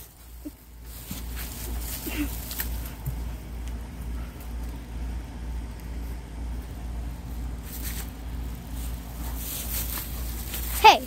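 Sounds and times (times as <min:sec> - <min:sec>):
dog digging in soil: 0:07.2 - 0:10.8.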